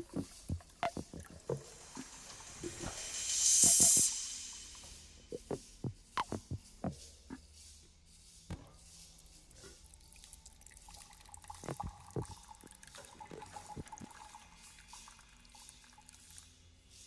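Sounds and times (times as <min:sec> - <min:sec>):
faint water dripping: 0:00.0 - 0:07.7, 0:08.5 - 0:17.0
low hiss: 0:00.0 - 0:08.0.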